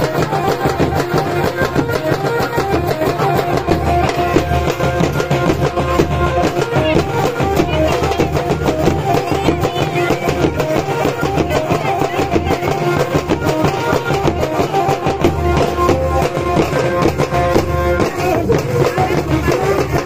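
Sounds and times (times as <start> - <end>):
barrel drums: 0.0 - 20.0
stick-beaten frame drums: 0.0 - 20.0.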